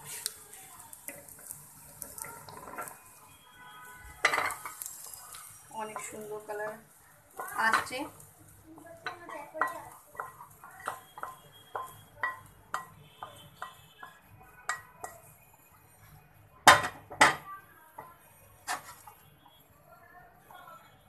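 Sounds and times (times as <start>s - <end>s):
spatula scraping and knocking pan: 1.1s - 3.0s, 4.2s - 6.6s, 8.8s - 15.3s, 18.0s - 19.2s.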